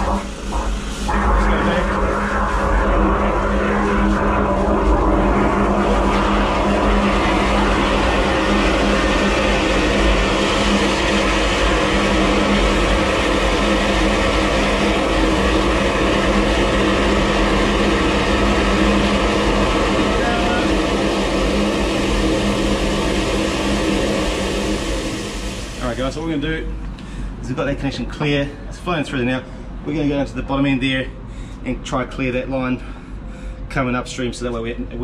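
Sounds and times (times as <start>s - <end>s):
water jet rushing: 0.0s - 26.8s
drain jetter engine humming: 0.0s - 28.2s.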